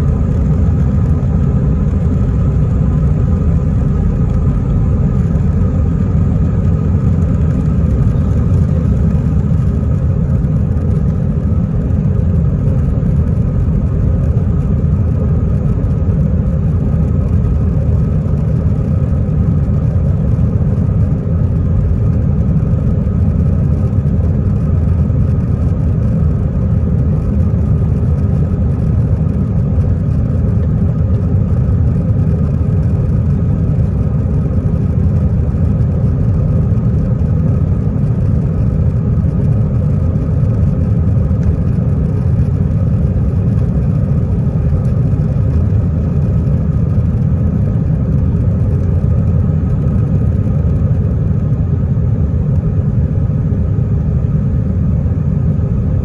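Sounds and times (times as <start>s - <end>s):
jet engines rumbling inside cabin: 0.0s - 56.0s.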